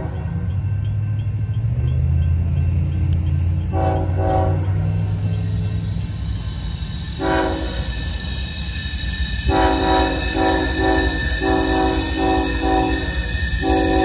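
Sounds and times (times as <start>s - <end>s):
low rumble of passing train: 0.0s - 14.0s
locomotive air horn blasts: 3.7s - 4.9s, 7.2s - 8.0s, 9.5s - 14.0s.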